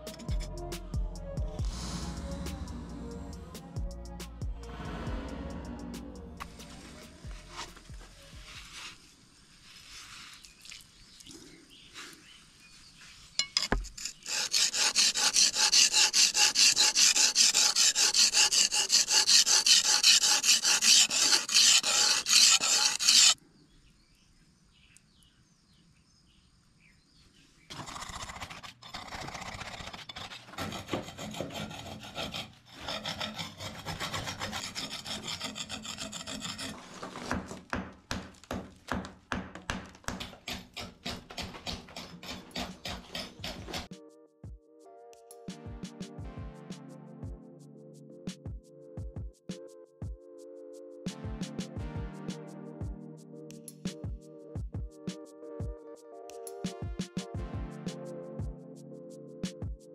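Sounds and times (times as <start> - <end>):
blade sharpened on whetstone: 13.4 - 23.4, 28.1 - 36.8, 40.5 - 43.9.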